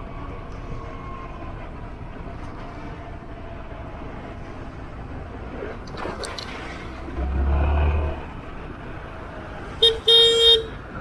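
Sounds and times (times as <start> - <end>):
road and wind noise: 0.0 - 11.0
low rumble: 0.1 - 9.3
vehicle horn honking: 9.8 - 10.8.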